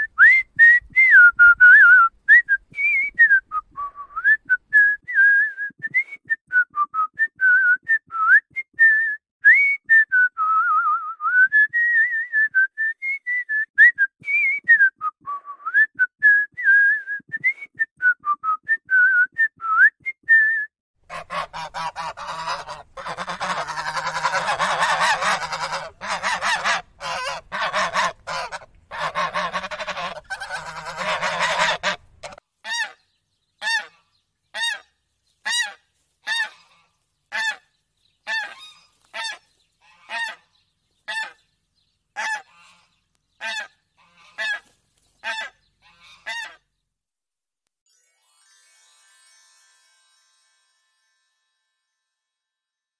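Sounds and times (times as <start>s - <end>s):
person whistling a tune: 0.0s - 20.7s.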